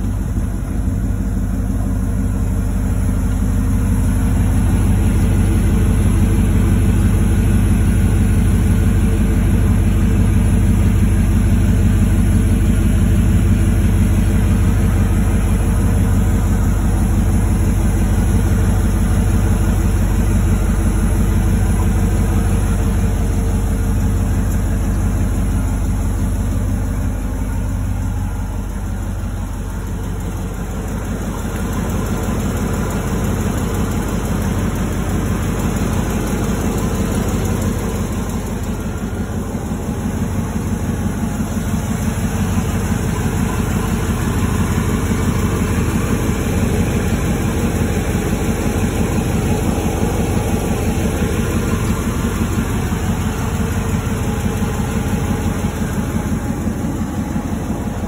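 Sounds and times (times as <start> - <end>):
truck engine idling: 0.0 - 58.0.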